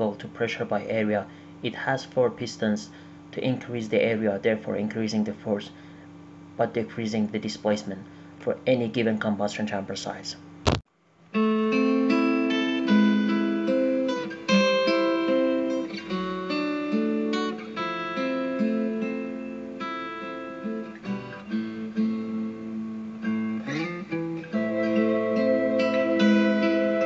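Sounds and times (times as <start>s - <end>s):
acoustic guitar melody: 11.3s - 27.0s.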